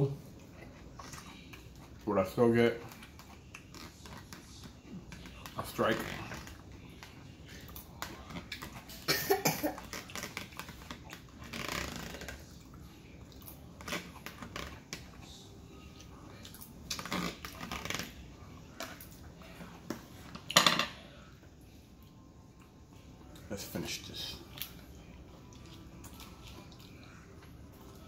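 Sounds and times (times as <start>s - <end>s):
chewing and mouth sounds: 0.2s - 5.6s, 6.2s - 9.1s, 9.8s - 20.0s, 24.3s - 28.0s.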